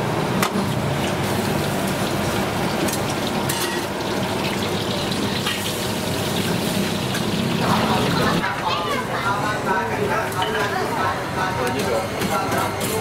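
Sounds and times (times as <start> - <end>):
food sizzling in oil: 0.8 - 8.4.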